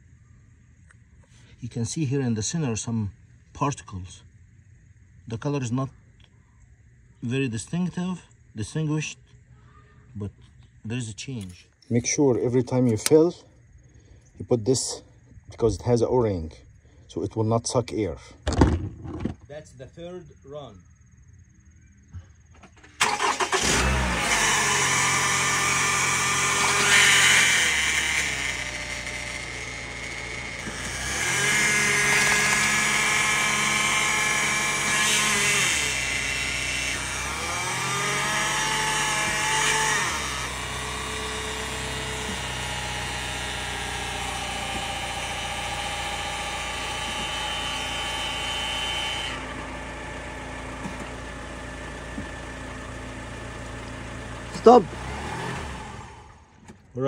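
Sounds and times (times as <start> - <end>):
car engine starting and idling: 22.4 - 35.2, 35.8 - 56.9.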